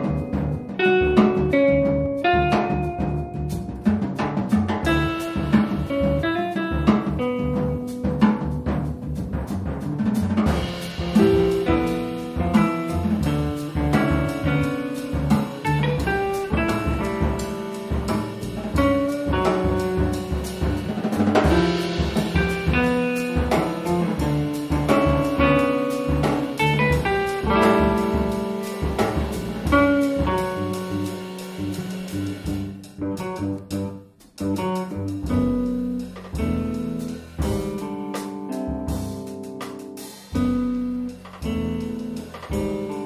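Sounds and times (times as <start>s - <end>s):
live rock band instrumental: 0.0s - 43.0s.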